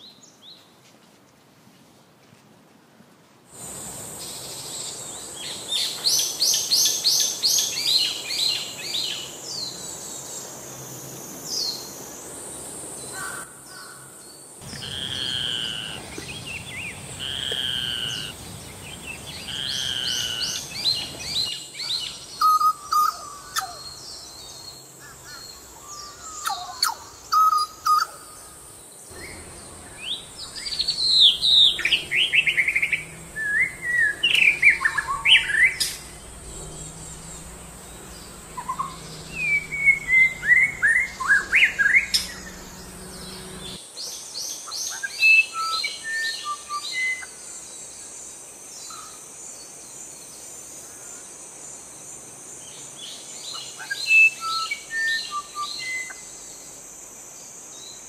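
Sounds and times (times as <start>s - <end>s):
bird song of falling phrases: 13.1s - 47.3s.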